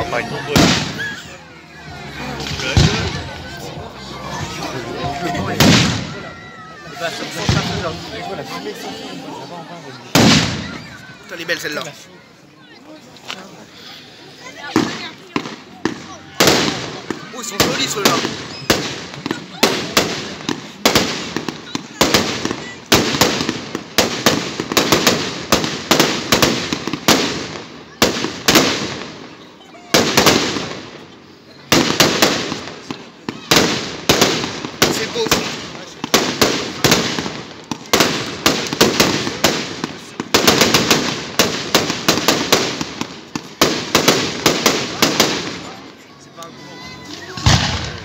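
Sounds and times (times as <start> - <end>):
fireworks bangs with crackle: 0.0 - 1.4, 2.4 - 8.4, 10.1 - 11.8, 14.5 - 45.9, 46.9 - 48.0
small firework pops: 14.7 - 29.2, 31.7 - 45.7.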